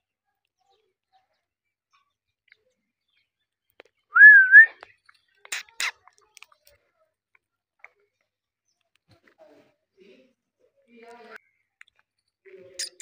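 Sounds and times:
parrot whistling: 4.2 - 4.7.

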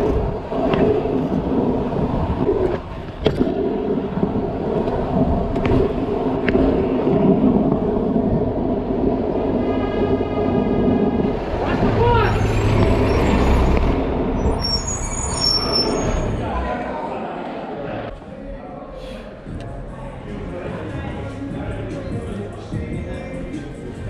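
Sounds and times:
wind buffeting microphone: 0.0 - 14.7
hard wheels rolling on asphalt: 0.0 - 16.5.

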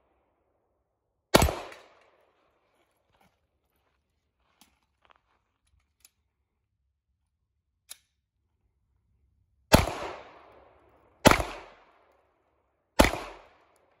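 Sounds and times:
pistol shots echoing: 1.3 - 2.0, 9.7 - 10.5, 11.2 - 12.0, 13.0 - 13.7.

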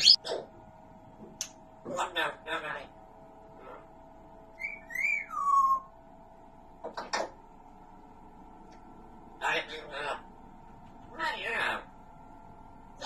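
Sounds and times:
parrot whistling: 0.0 - 0.2, 4.6 - 5.9.

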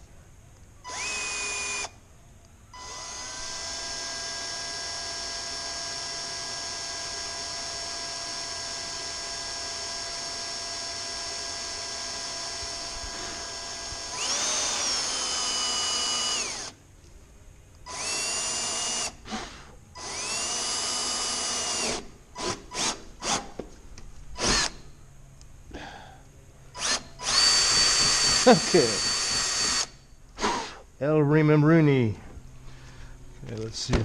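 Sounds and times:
cordless drill whine: 0.8 - 2.0, 2.7 - 16.8, 17.8 - 23.6, 24.4 - 24.9, 26.7 - 30.8.

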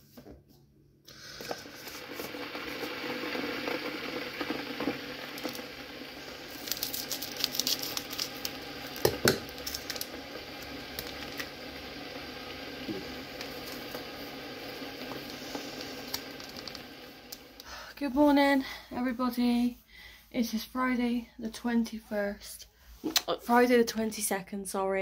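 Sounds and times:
foil sachet crinkling: 1.3 - 11.7, 13.2 - 17.8.

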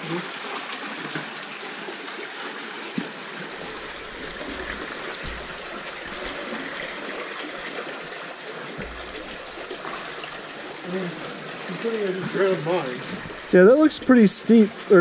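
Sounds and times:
water trickling and flowing: 0.0 - 15.0
low thumps: 3.7 - 6.9, 8.8 - 10.5.

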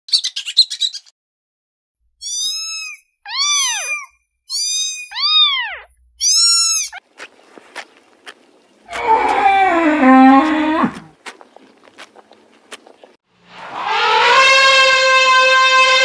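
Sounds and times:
kitten mewing: 2.2 - 7.0.

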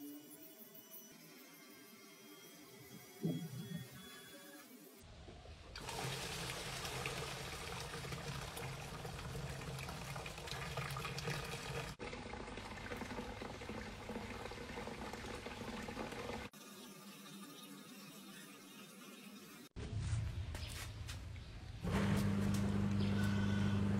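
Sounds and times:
water spraying into a cylinder: 5.8 - 16.5.

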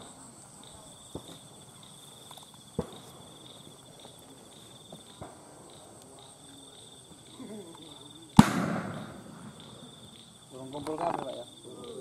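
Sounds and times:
crickets trilling: 0.0 - 12.0
short sharp cracks: 8.4 - 9.7.

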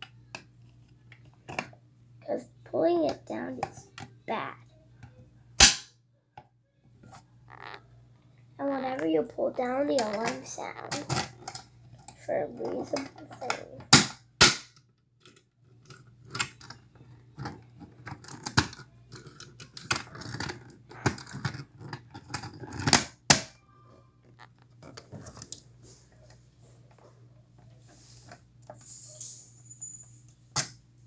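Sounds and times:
keys jangling on a ring: 28.7 - 30.4.

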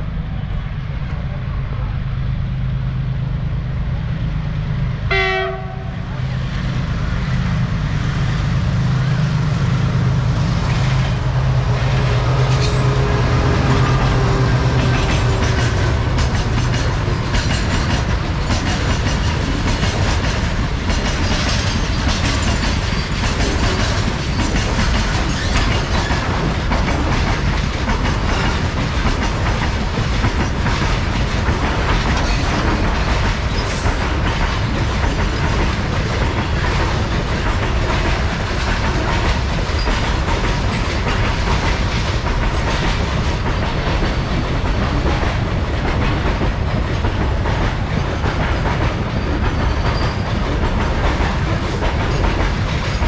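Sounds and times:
locomotive engine droning: 0.0 - 19.5
wheels clacking over rail joints: 10.2 - 53.0.

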